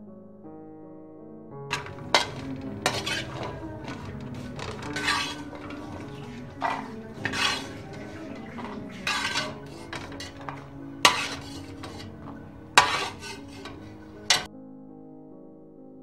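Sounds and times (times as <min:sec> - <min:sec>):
metal skimmer scraping a pot: 0:01.7 - 0:14.5
sharp metal clanks: 0:01.7 - 0:14.5.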